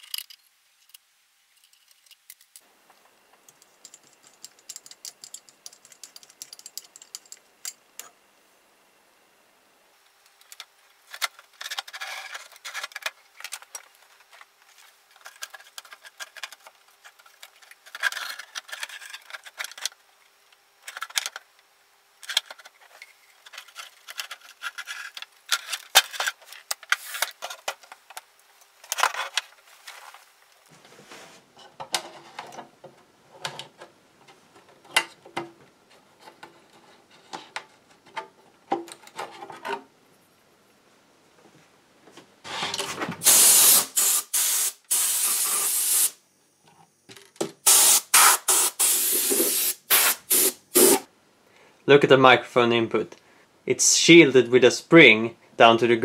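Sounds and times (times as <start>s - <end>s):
metal parts clicking and rattling: 0.0s - 2.6s, 3.5s - 7.8s, 10.4s - 14.5s, 15.1s - 20.0s, 20.8s - 21.5s, 22.2s - 28.2s.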